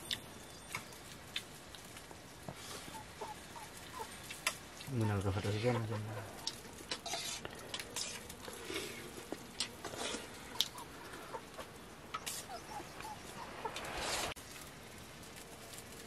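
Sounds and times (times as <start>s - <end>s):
hens clucking: 2.7s - 4.2s, 4.8s - 7.0s, 10.4s - 14.3s.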